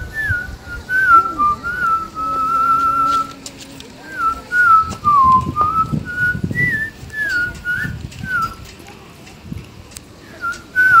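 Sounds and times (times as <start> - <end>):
person whistling a tune: 0.2 - 3.4, 4.2 - 8.7, 10.4 - 11.0.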